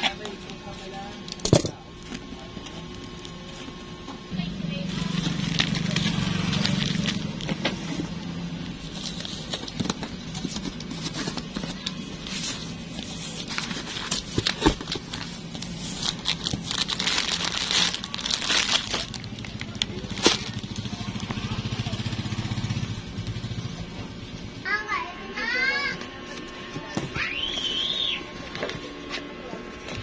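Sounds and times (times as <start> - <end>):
steady low hum: 0.0 - 30.0
plastic sachets crinkling: 5.0 - 8.0, 8.7 - 21.5.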